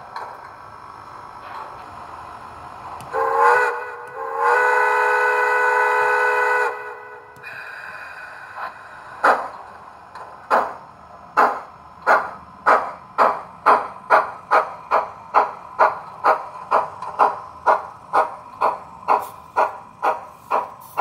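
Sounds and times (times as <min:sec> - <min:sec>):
steam locomotive exhaust chuffs: 0:00.0 - 0:21.0
steam whistle blasts: 0:03.1 - 0:07.9.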